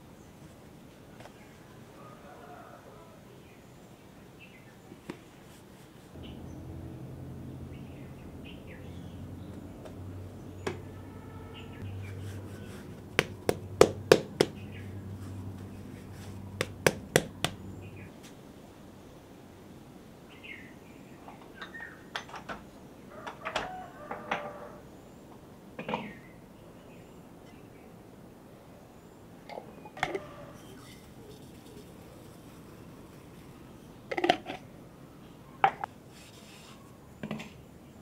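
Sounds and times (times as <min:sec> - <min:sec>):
low steady hum: 0:06.1 - 0:18.2
sharp knocks: 0:13.1 - 0:14.6, 0:16.6 - 0:17.6.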